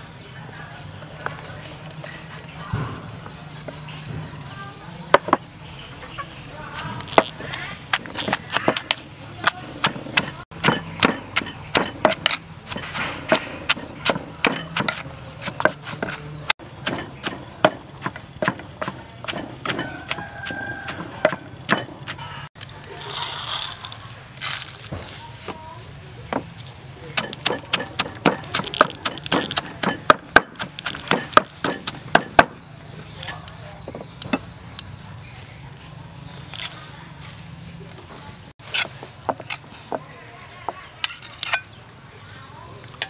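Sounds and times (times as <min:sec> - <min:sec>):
wooden pestle pounding in mortar: 0:07.1 - 0:22.2, 0:27.2 - 0:32.6.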